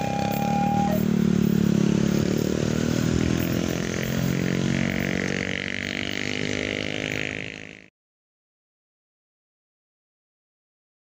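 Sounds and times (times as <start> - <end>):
diesel train engine drone: 0.0 - 5.8.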